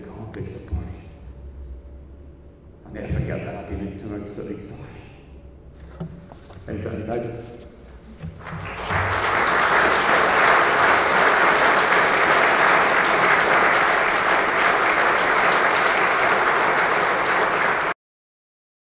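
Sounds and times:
crowd applauding: 8.3 - 18.0.

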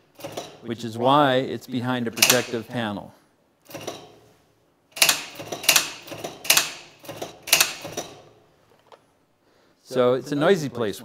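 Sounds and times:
mechanical relays clacking: 0.1 - 0.6, 2.2 - 2.6, 5.0 - 8.4.

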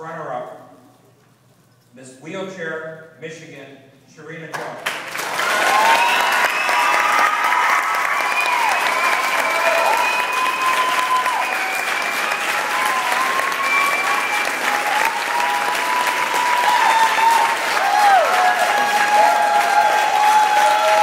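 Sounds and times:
audience applauding: 4.8 - 21.0
whooping cheers: 5.2 - 21.0.

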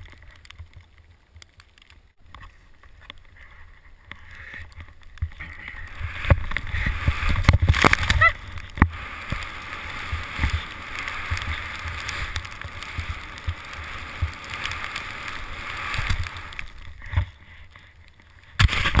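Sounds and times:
rushing wind: 2.4 - 19.0
skis hissing through snow: 5.4 - 18.0.

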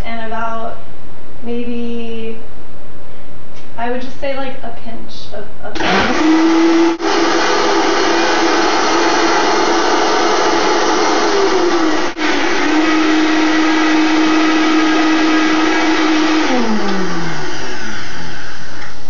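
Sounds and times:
blender motor running: 5.8 - 19.0.

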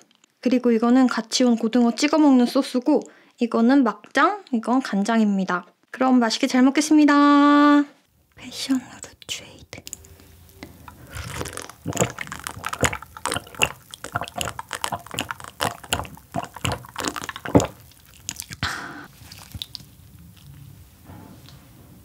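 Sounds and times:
wet gulps and swallows: 9.8 - 19.9.

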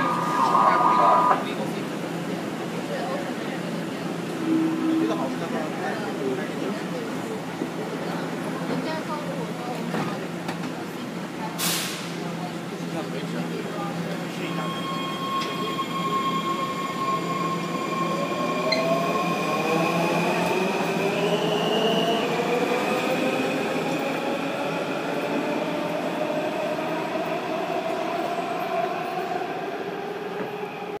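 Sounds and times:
subway train motors whining: 0.0 - 31.0.

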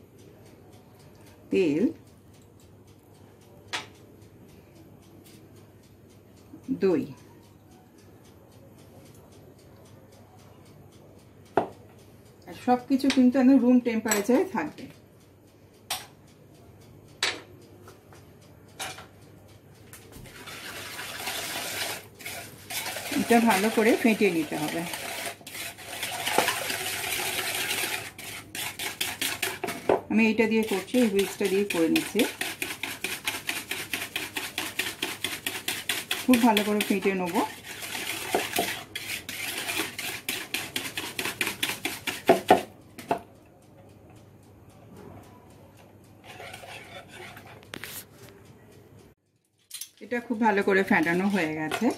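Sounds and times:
wire whisk rattling in plastic bowl: 20.4 - 29.9, 30.6 - 42.3
whisk knocking against bowl: 20.4 - 43.2.

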